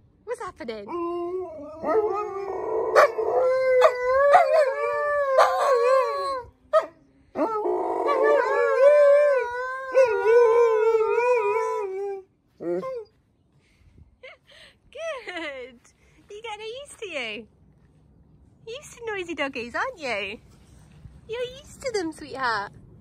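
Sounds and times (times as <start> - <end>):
dog howling: 1.1 - 6.4, 7.4 - 13.1.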